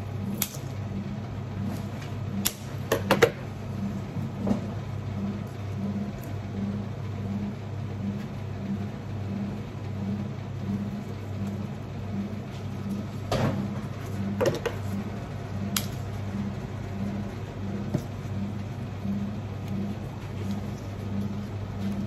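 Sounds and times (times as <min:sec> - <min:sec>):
low pulsing machine hum: 0:00.0 - 0:22.0.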